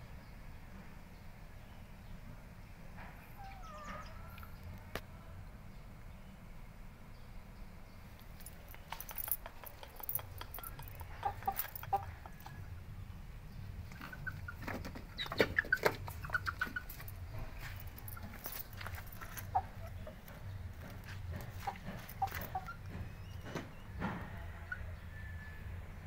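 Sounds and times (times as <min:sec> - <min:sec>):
rooster clucking: 0:09.4 - 0:12.8, 0:13.9 - 0:25.0.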